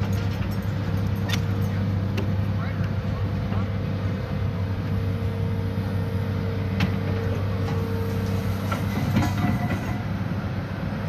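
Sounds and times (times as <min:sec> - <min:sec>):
excavator engine running: 0:00.0 - 0:11.0
metal clanks: 0:07.7 - 0:10.1.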